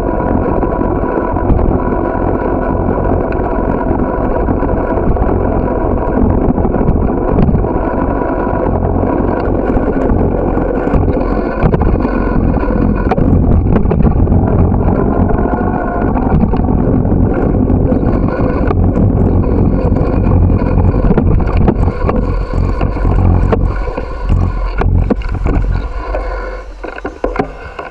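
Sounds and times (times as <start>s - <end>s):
wind rumbling on microphone: 0.0s - 27.9s
camera rattling clicks and knocks: 26.8s - 27.9s.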